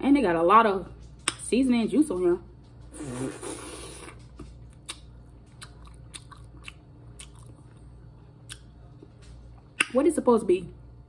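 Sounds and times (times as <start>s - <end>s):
chewing: 2.9s - 9.9s
wet bite: 9.8s - 10.0s.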